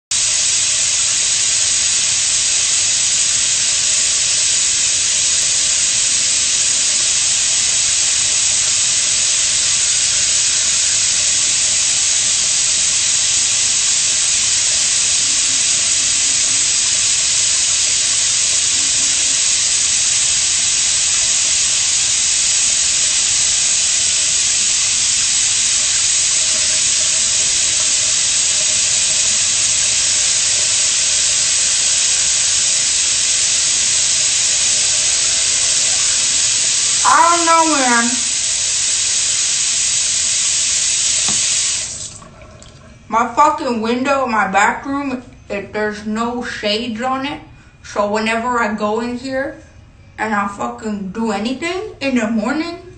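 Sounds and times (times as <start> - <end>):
loud steady hiss: 0.1 - 42.3.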